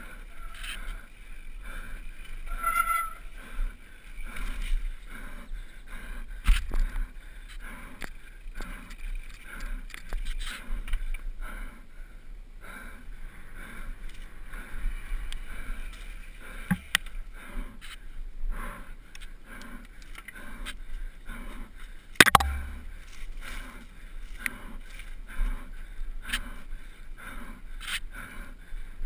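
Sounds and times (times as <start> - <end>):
mountain bike tyre noise and rattling: 0.0 - 11.3, 13.2 - 18.2.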